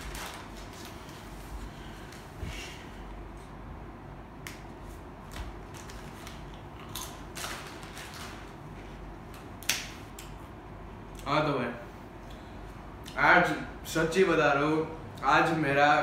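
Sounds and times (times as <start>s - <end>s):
foil packet crinkling: 0.0s - 1.3s, 5.6s - 8.6s.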